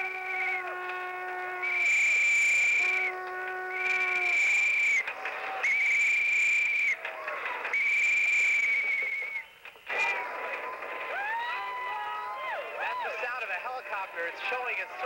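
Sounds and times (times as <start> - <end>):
high-pitched whistle blasts: 0.0 - 7.0, 7.7 - 9.5.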